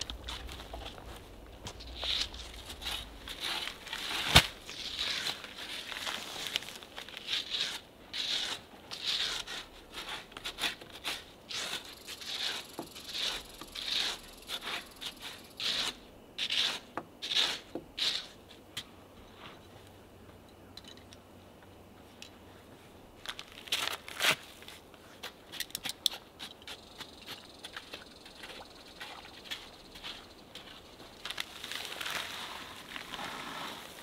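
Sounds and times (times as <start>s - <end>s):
shovel digging into stony ground: 0.0s - 18.4s, 23.6s - 24.6s.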